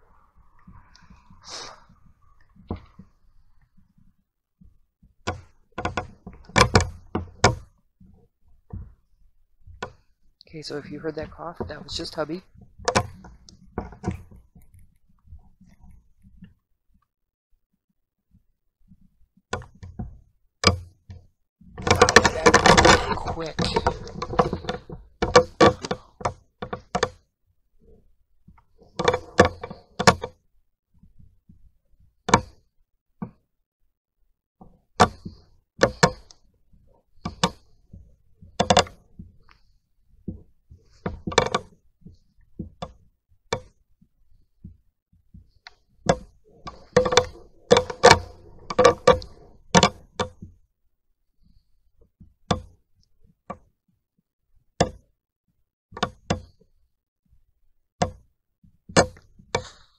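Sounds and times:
sharp knocks and clicks: 3.8s - 10.1s, 11.1s - 17.1s, 18.3s - 30.4s, 31.0s - 33.4s, 34.6s - 50.6s, 52.2s - 53.7s, 54.8s - 55.2s, 55.9s - 56.7s, 58.0s - 58.3s, 58.9s - 59.9s.

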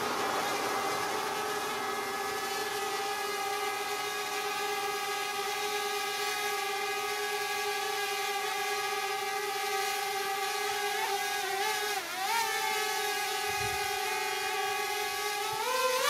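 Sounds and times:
drone propellers whining: 0.0s - 7.1s.

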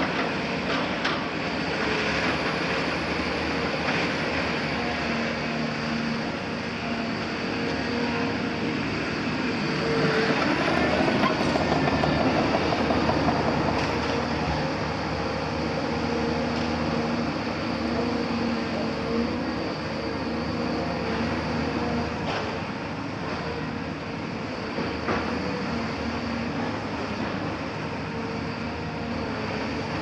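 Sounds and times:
hydraulic whine: 0.1s - 30.0s
excavator diesel engine running: 1.9s - 23.5s.

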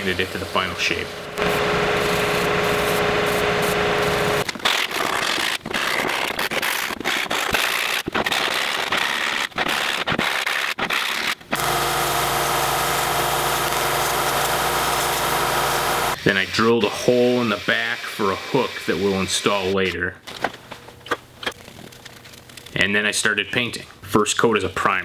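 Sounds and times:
choppy sanding noise: 0.0s - 11.4s
spindle sander humming: 0.2s - 4.5s, 11.6s - 16.2s
belt and disc sander running: 0.3s - 4.5s, 11.6s - 16.2s.

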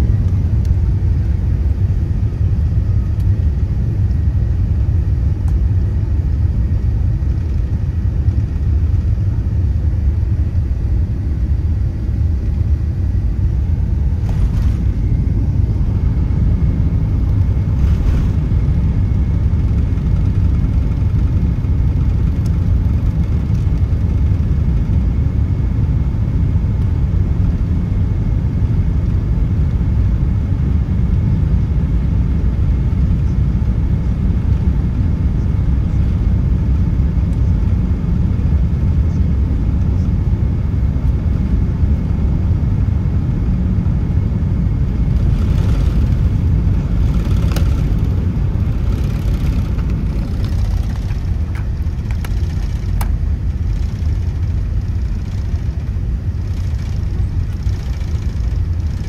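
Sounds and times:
jet engine noise in cabin: 0.0s - 59.0s
wheels rolling on runway: 45.1s - 59.0s.

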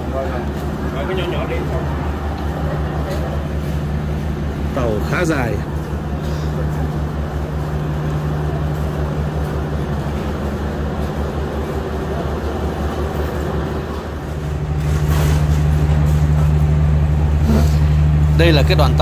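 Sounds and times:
locomotive engine idling: 0.0s - 19.0s.

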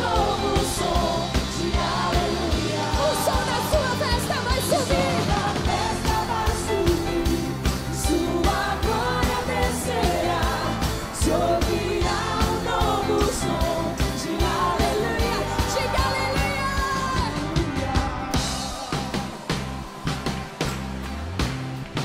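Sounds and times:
woman singing into microphone: 0.0s - 9.9s, 11.2s - 19.4s
bass: 0.0s - 22.0s
drums: 0.0s - 22.0s.

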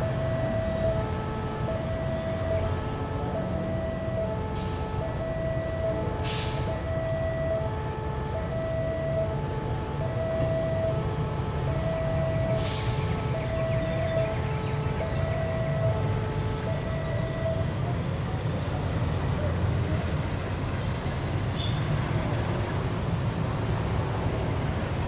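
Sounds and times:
level-crossing alarm two-tone: 0.0s - 17.8s
diesel locomotive rumble: 0.0s - 25.0s
air brake hisses: 4.5s - 5.0s, 6.2s - 6.8s, 12.5s - 13.1s.

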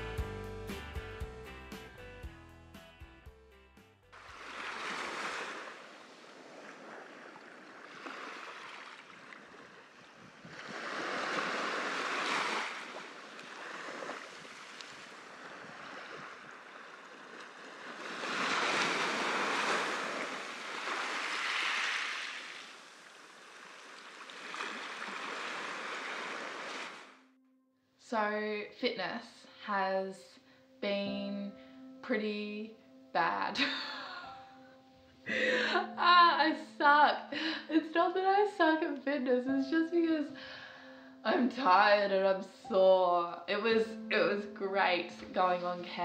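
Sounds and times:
small waves breaking on beach: 4.2s - 27.2s.

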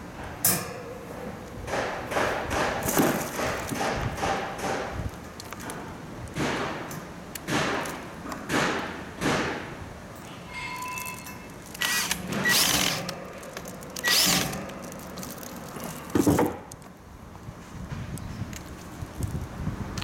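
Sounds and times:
knocks and handling noises: 1.7s - 8.8s, 10.2s - 17.0s
cordless drill driving screws: 11.8s - 13.1s, 14.0s - 14.6s.

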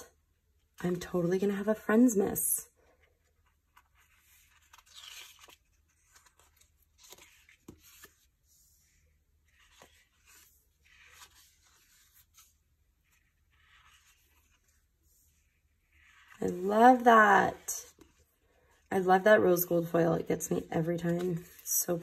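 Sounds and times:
paper pages rustling: 2.8s - 18.8s.

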